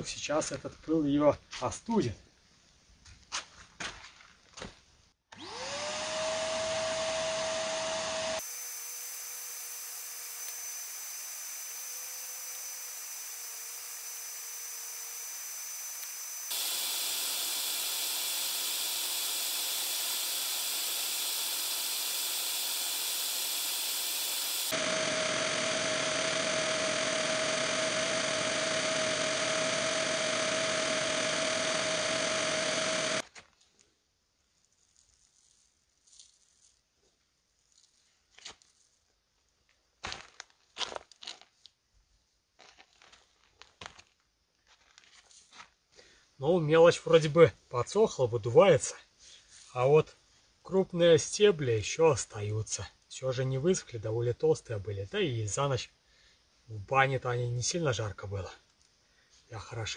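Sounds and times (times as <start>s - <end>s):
vacuum cleaner motor whining: 5.3s - 33.2s.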